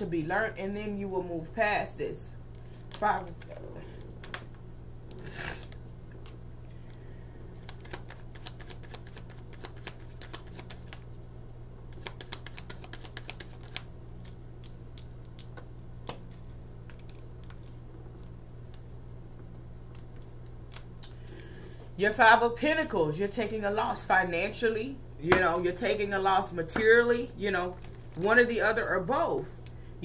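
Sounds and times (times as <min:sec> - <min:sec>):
nails clicking on cards: 0:11.9 - 0:13.8.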